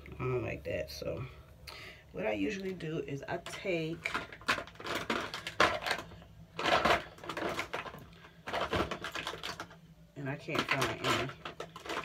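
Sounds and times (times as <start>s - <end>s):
hands rummaging small hard objects: 4.0s - 9.8s, 10.4s - 12.0s.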